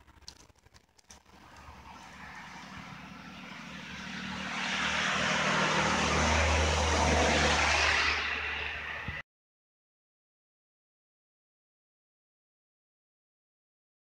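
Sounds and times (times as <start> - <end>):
vehicle passing by: 1.3 - 9.2.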